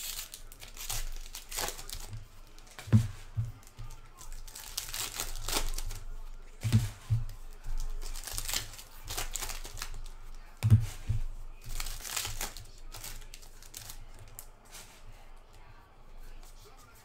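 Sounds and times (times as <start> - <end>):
foil wrappers crinkling and tearing: 0.0 - 14.8
dull thumps: 2.1 - 4.1, 6.6 - 8.5, 10.6 - 11.8.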